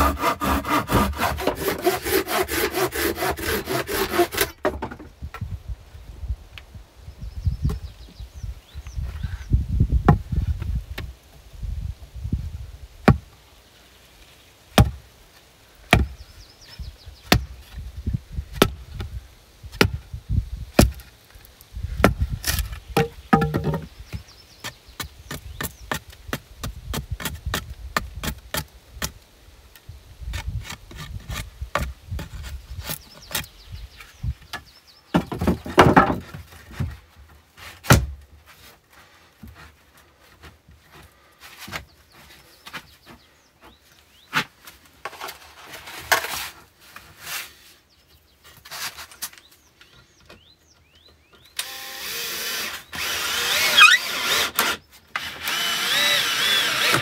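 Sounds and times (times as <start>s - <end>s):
hatchet chopping wood: 0.0s - 5.0s, 13.0s - 13.3s, 14.8s - 15.0s, 15.9s - 16.2s, 17.3s - 17.5s, 20.8s - 21.0s, 22.0s - 23.9s, 37.9s - 38.2s
wooden boards knocking: 23.0s - 23.9s, 35.1s - 36.5s
cordless drill driving screw: 51.6s - 57.0s.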